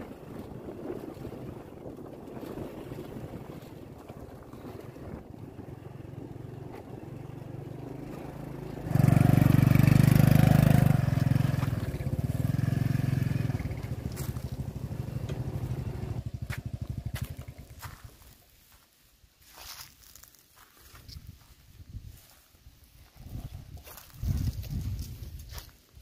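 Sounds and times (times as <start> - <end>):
small motorcycle engine: 4.8 - 18.1.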